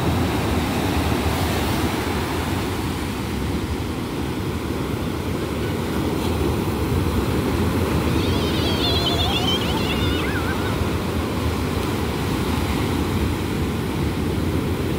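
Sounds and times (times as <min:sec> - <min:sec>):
waves breaking on shore: 0:00.0 - 0:14.9.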